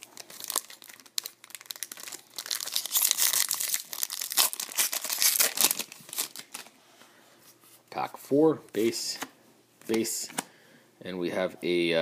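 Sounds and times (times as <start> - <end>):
wrapper crinkling and tearing: 0.0 - 6.8.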